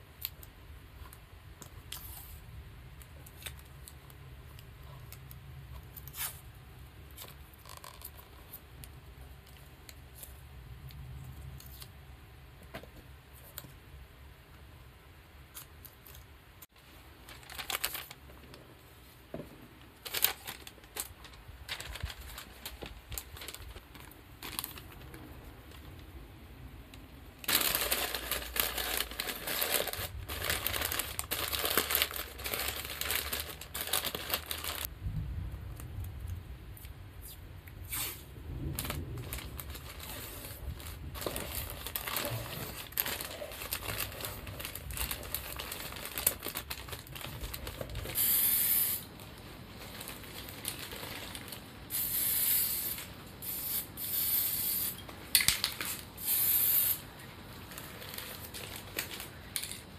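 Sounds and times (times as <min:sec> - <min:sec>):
newspaper crinkling: 0:07.2 - 0:08.5, 0:16.7 - 0:18.6, 0:20.0 - 0:26.1, 0:27.4 - 0:34.9, 0:38.6 - 0:48.3, 0:49.1 - 0:51.7, 0:57.6 - 0:59.6
aerosol spray can hissing: 0:48.2 - 0:49.0, 0:51.9 - 0:55.0, 0:56.2 - 0:57.0.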